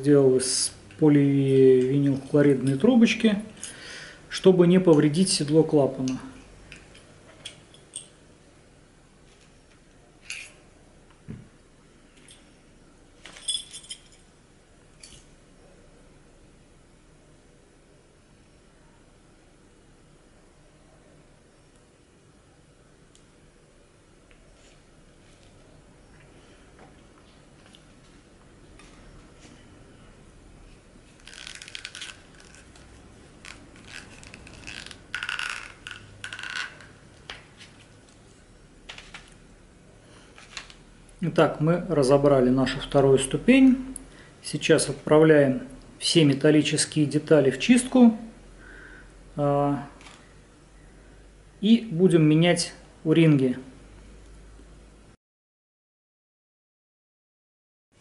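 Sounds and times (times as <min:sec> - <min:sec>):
small metal parts clinking: 0:13.2 - 0:14.3.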